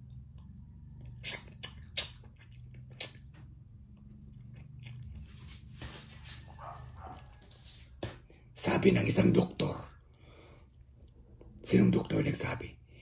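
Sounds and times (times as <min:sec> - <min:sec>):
person chewing crunchy fruit: 0:00.0 - 0:07.4.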